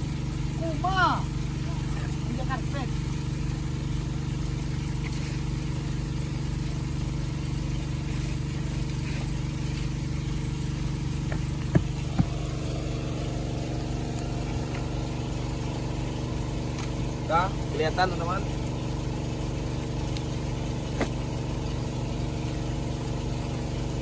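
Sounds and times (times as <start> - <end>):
petrol engine running a pump: 0.0 - 24.0
sharp knocks: 11.2 - 12.5.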